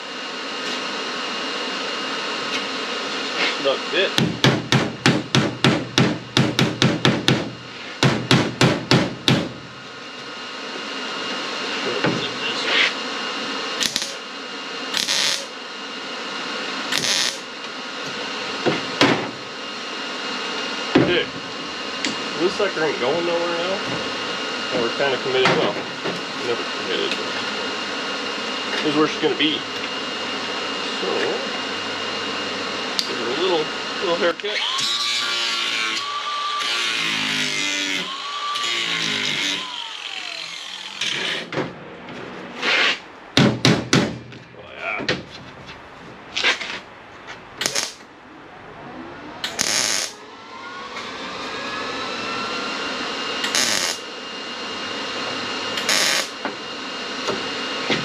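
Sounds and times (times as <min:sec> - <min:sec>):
sharp knocks: 0:04.2 - 0:09.6, 0:43.4 - 0:44.3
welder hissing on sheet metal: 0:13.8 - 0:14.2, 0:14.9 - 0:15.5, 0:16.9 - 0:17.4, 0:47.6 - 0:48.0, 0:49.6 - 0:50.2, 0:53.4 - 0:54.0, 0:55.8 - 0:56.4
angle grinder grinding sheet metal: 0:15.0 - 0:15.5, 0:16.9 - 0:17.4, 0:34.7 - 0:41.5, 0:49.6 - 0:50.2, 0:53.5 - 0:54.0, 0:55.8 - 0:56.3.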